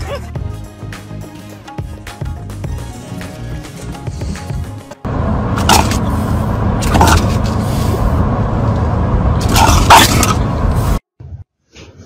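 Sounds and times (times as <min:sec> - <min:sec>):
road and wind noise in car: 0:03.8 - 0:11.0.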